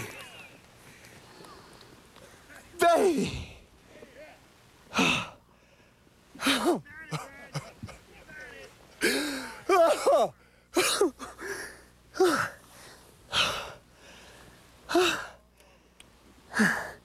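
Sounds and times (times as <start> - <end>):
man crying out excitedly: 2.8 - 3.6, 6.4 - 8.1, 9.0 - 11.4.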